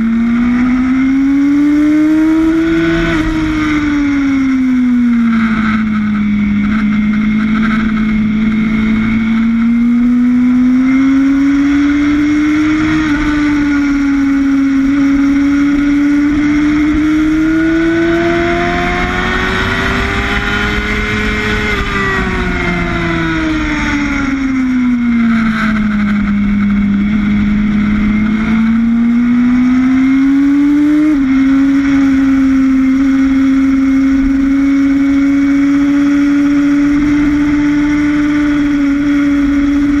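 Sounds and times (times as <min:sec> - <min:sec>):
motorcycle engine revving: 0:00.0 - 0:40.0
wind rush: 0:01.8 - 0:40.0.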